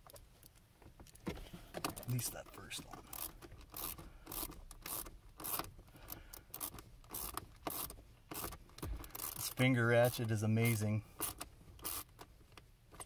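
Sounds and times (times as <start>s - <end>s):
finger ratchet clicking: 3.1s - 9.6s, 11.2s - 12.3s.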